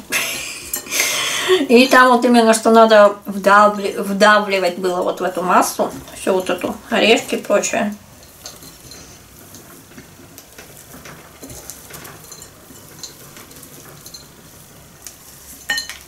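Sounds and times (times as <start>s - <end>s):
rustle of nut pieces: 8.0s - 16.0s.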